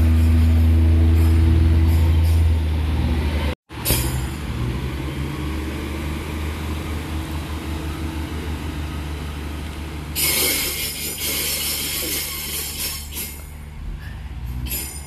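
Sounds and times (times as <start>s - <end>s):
train diesel engines rumbling: 0.0s - 15.0s
loud hiss: 10.2s - 13.5s.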